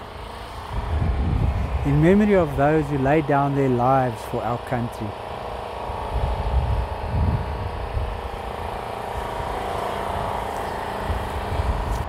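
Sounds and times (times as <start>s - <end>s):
steady mechanical hum: 0.0s - 12.0s
wind rumbling on microphone: 0.6s - 3.7s, 5.9s - 12.0s.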